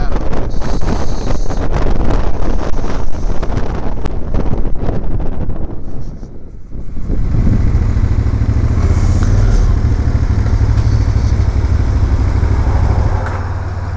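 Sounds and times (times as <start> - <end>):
motorcycle engine at low revs: 6.6 - 13.9.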